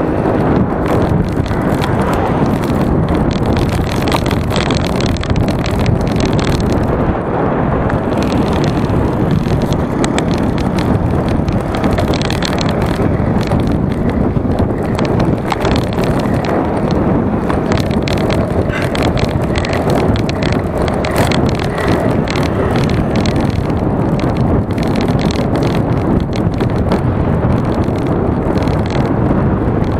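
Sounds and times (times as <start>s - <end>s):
tyre and road rumble: 0.0s - 29.9s
wind rush on microphone: 0.0s - 29.9s
small clicks and rattles: 0.8s - 7.0s, 7.9s - 29.9s.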